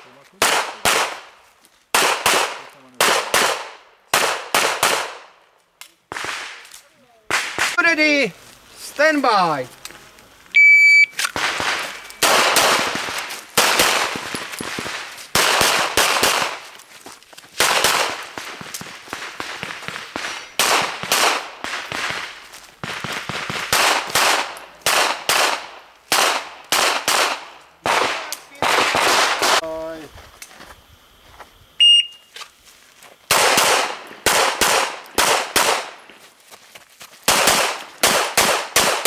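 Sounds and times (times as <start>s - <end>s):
pistol shots with echo: 0.4s - 1.3s, 1.9s - 5.3s, 11.4s - 16.6s, 17.6s - 18.6s, 19.4s - 22.3s, 22.9s - 29.6s, 33.3s - 36.0s, 37.3s - 39.0s
shot timer beep: 10.6s - 11.2s, 31.8s - 32.2s.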